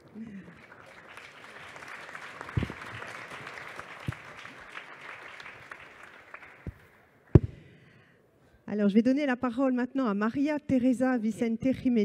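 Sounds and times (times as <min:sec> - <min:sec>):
audience applauding: 0:00.0 - 0:06.9
dull thumps: 0:07.4 - 0:07.7.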